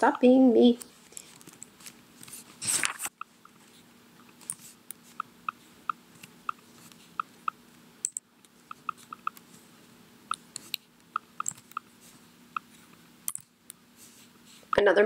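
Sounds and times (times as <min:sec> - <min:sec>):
laptop keyboard typing: 0:04.3 - 0:09.4, 0:10.3 - 0:11.9.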